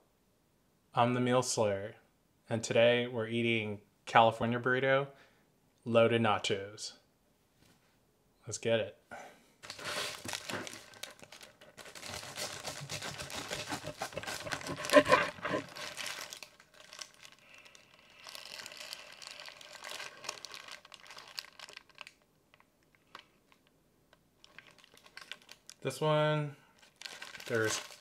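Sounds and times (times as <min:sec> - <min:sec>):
wrapper crinkling and tearing: 0:09.6 - 0:23.7, 0:24.4 - 0:25.9, 0:26.8 - 0:28.0.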